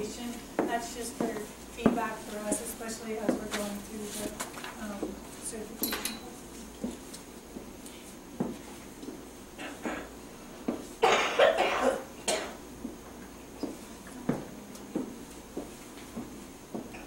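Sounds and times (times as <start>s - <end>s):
person coughing: 9.6s - 10.1s, 11.0s - 12.6s.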